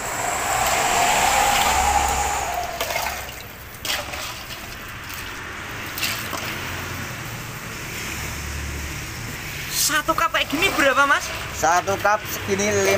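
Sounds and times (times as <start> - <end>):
ice sloshing and pouring: 3.8 - 6.8.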